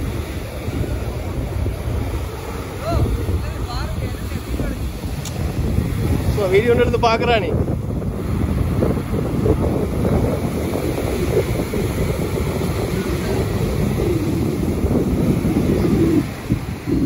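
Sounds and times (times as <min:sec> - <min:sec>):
breaking surf: 0:00.0 - 0:17.0
wind buffeting microphone: 0:00.0 - 0:17.0.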